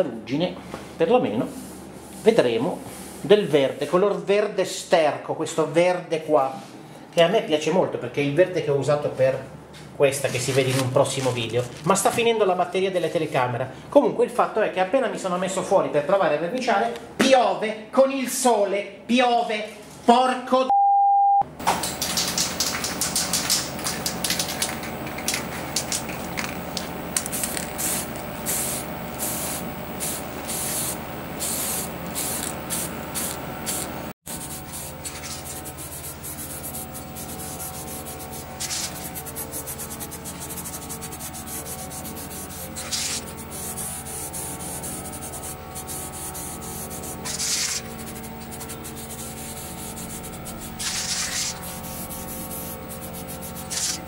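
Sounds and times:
aerosol spray can spraying: 0:21.8 - 0:26.5, 0:27.2 - 0:54.0.

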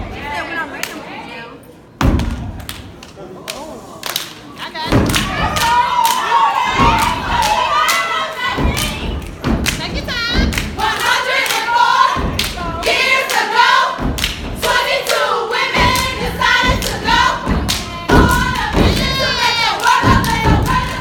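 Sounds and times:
clapping in rhythm: 0:02.2 - 0:21.0
women chanting in unison: 0:04.8 - 0:21.0.

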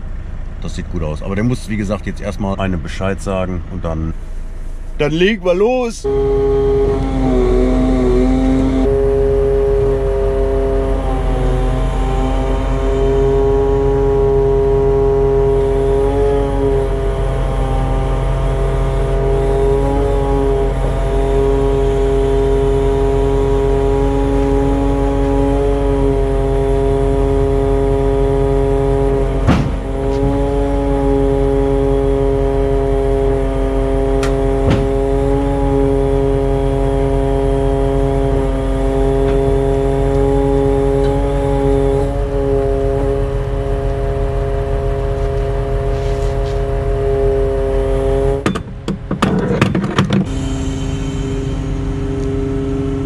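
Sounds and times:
truck engine: 0:00.0 - 0:53.0
crane hydraulic drive: 0:50.1 - 0:52.9.

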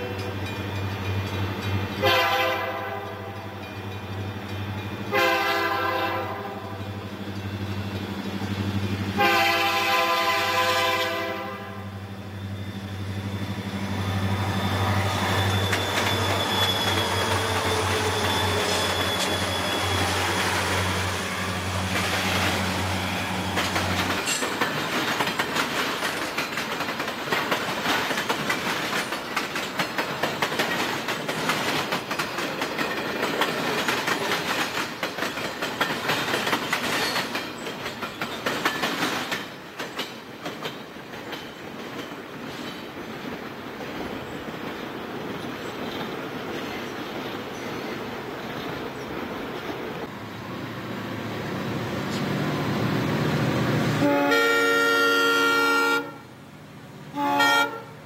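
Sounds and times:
diesel locomotive rumbling: 0:00.0 - 0:58.0
locomotive horn blasts: 0:02.0 - 0:03.5, 0:05.1 - 0:06.8, 0:09.2 - 0:12.0, 0:54.0 - 0:56.3, 0:57.1 - 0:58.0
train wheels clacking on rail joints: 0:13.0 - 0:50.1.

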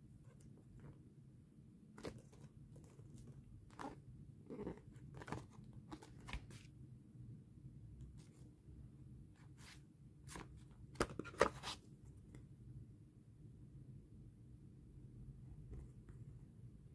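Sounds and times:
book pages rustling: 0:02.0 - 0:06.7, 0:09.5 - 0:11.8.

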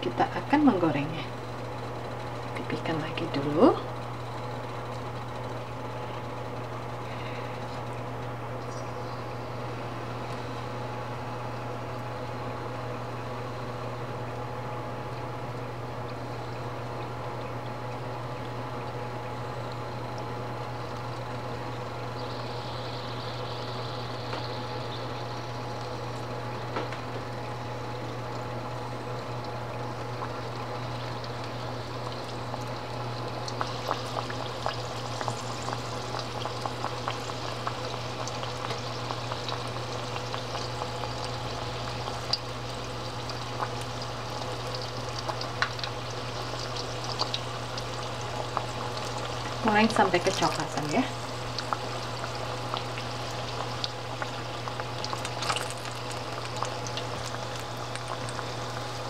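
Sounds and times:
constant low hum: 0:00.0 - 0:59.0
dough deep-frying in hot oil: 0:00.0 - 0:59.0
oil crackling and popping: 0:15.1 - 0:59.0.

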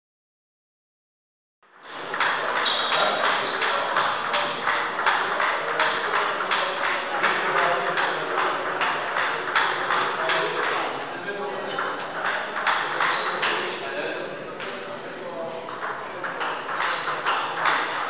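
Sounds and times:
murmur of sports hall: 0:01.6 - 0:18.0
table tennis balls clicking: 0:01.8 - 0:13.7, 0:15.7 - 0:18.0.

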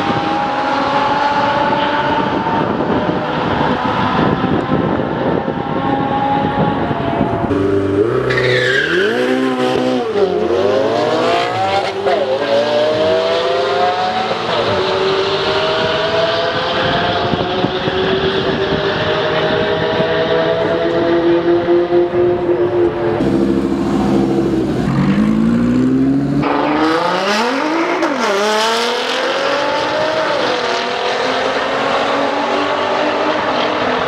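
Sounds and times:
car engines accelerating hard: 0:00.0 - 0:34.0
short high whine: 0:23.2 - 0:26.4.

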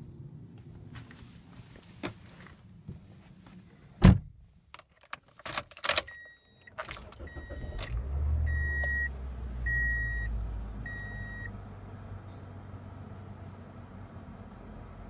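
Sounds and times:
keys jangling in ignition: 0:04.8 - 0:08.1
seatbelt warning chime beeps: 0:06.0 - 0:09.1, 0:09.7 - 0:11.6
car engine starting and idling: 0:06.6 - 0:15.0.

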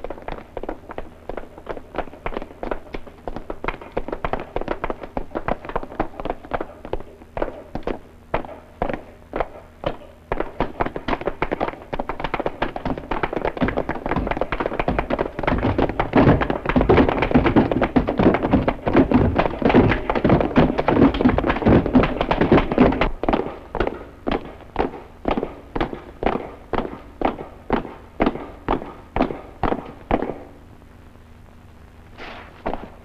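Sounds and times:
boots running on wooden floor: 0:10.4 - 0:30.3.

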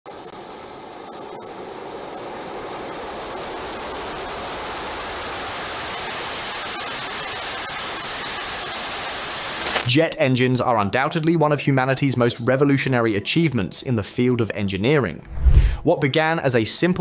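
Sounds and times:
turbojet engine whine: 0:00.1 - 0:07.6
jet rushing: 0:15.3 - 0:15.8.

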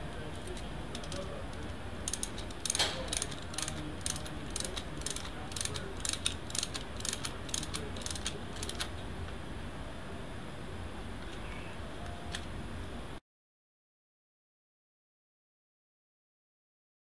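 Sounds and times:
ratchet spanner clicking: 0:00.9 - 0:01.2, 0:02.1 - 0:08.9.

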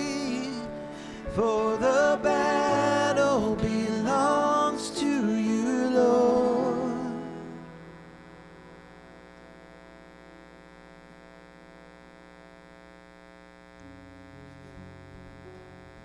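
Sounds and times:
amplifier electrical hum: 0:00.0 - 0:16.0.

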